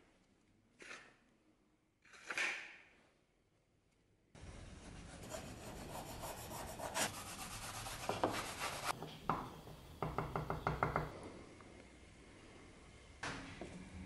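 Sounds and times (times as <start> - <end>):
file scraping wood: 5.0 - 9.0.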